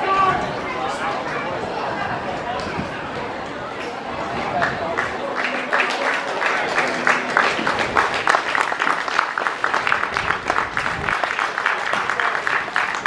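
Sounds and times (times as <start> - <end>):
spectators clapping: 4.6 - 13.0.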